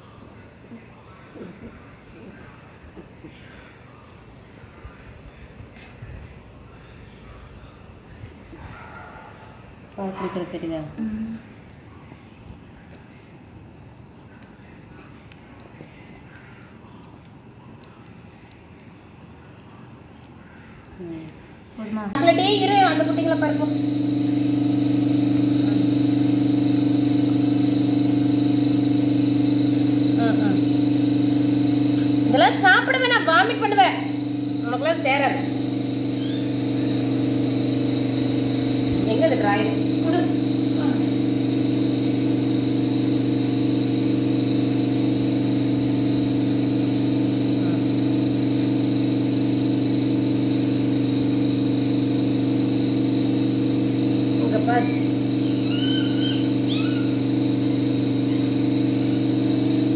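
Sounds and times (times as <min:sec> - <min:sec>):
faint high whine: 0:22.2 - 0:59.9
motor droning: 0:22.2 - 0:59.9.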